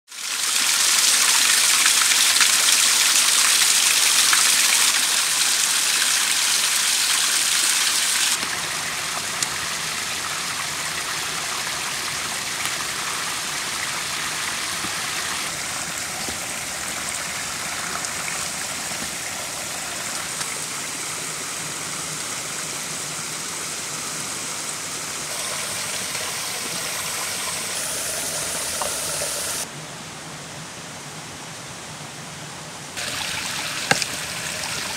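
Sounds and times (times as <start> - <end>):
water splashing over rocks: 0.3 - 20.9, 33.0 - 34.9.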